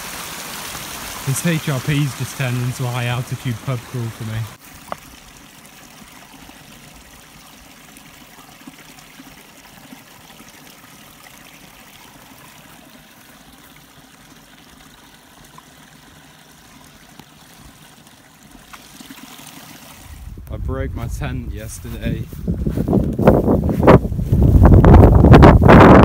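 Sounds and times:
running water trickling: 0.0s - 20.5s.

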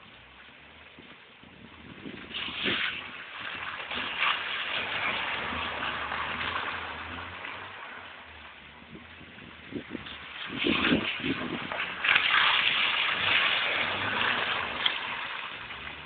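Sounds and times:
car engine running under load: 0.0s - 16.0s
tyres throwing up water hissing: 9.9s - 16.0s.

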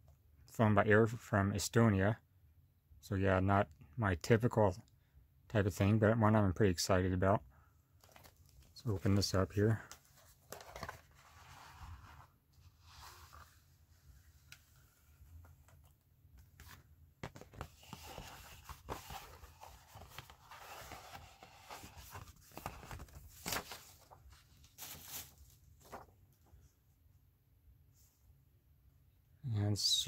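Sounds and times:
paper and cardboard rustling: 8.0s - 26.4s.

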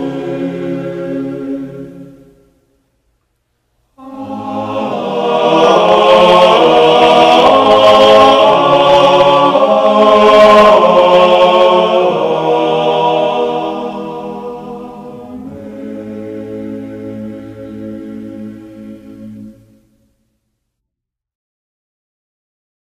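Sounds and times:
choir singing sustained chords: 0.0s - 3.0s, 3.9s - 20.2s.

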